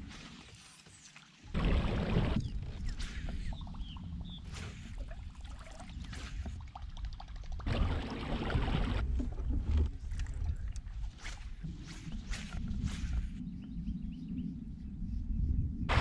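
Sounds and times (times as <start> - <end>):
rush of water: 1.1 - 2.5.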